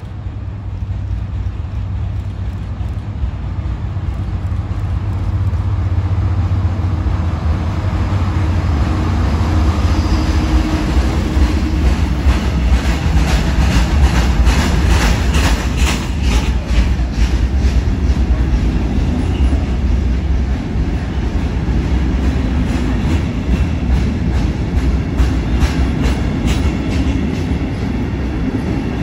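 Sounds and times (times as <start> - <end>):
diesel locomotive engine drone: 0.0 - 29.0
train wheels clattering over rail joints: 9.6 - 29.0.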